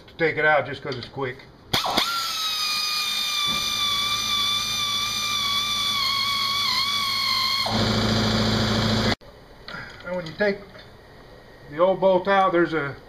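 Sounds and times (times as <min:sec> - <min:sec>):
air ratchet whining: 0:01.8 - 0:09.2.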